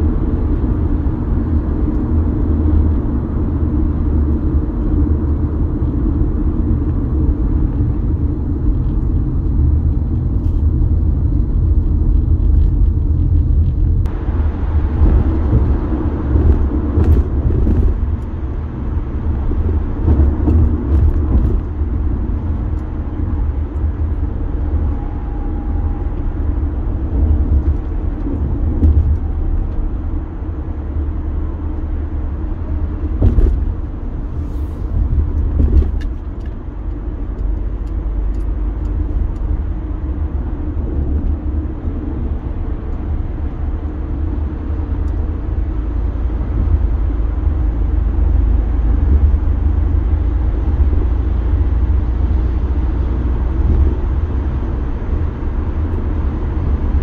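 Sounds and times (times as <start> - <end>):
tyres rumbling on pavement: 0.0 - 57.0
road hiss: 34.2 - 35.1.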